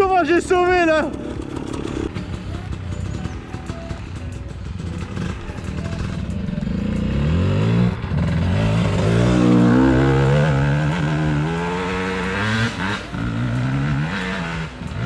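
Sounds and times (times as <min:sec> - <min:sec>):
motorcycle engine revving hard: 0:00.9 - 0:02.1, 0:06.7 - 0:15.0.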